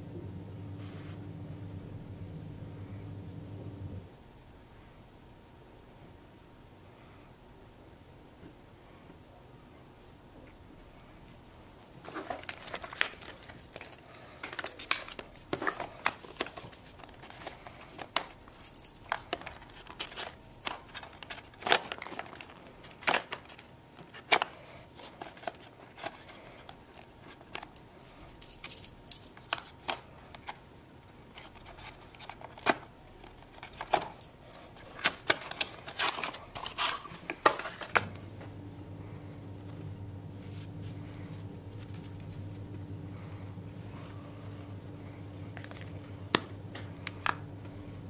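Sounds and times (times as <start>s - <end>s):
faint low hum: 0.0s - 48.0s
rustling of card and plastic: 12.0s - 38.4s, 40.3s - 48.0s.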